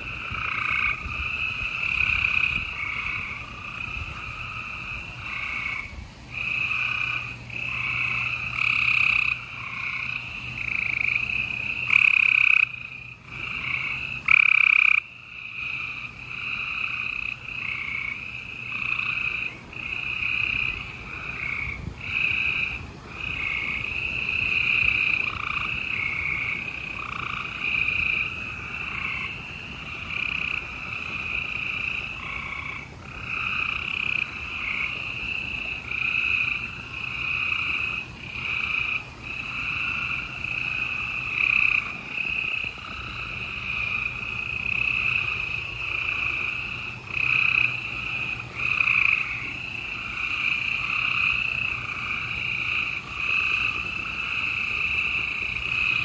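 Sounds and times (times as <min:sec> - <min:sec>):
treefrogs trilling: 0:00.0 - 0:56.0.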